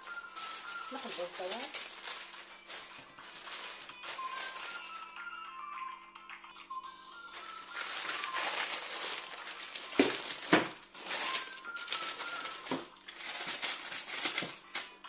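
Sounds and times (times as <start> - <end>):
baking parchment crinkling: 0.0 - 5.2, 7.3 - 15.0.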